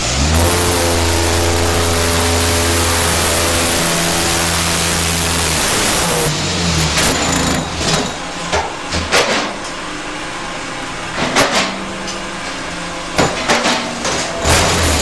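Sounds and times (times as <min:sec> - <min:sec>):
block making machine running: 0:00.0 - 0:09.6, 0:13.2 - 0:15.0
metal clanks and knocks: 0:13.2 - 0:15.0.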